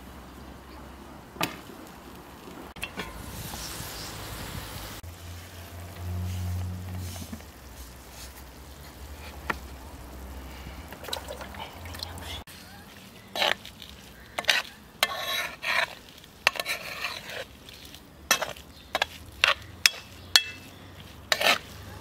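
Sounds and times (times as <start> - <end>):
herbs scraped off board: 13.0 - 22.0.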